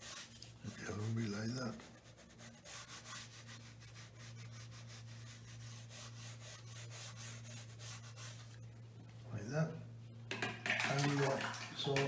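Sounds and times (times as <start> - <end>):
brush scratching on paper: 0.0 - 8.8
steady low hum: 0.0 - 10.7.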